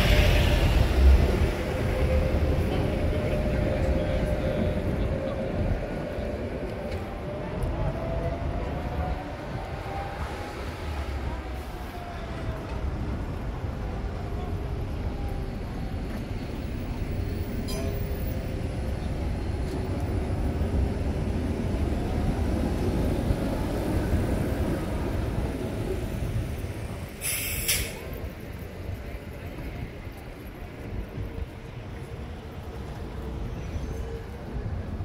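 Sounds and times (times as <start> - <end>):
tram rumbling past: 0.0 - 35.0
wheels squealing on rails: 0.0 - 35.0
short hiss: 27.2 - 28.0.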